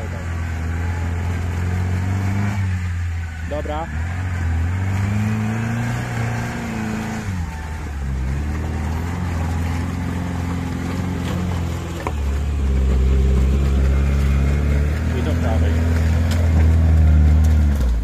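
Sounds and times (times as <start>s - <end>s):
off-road engine revving: 0.0s - 18.0s.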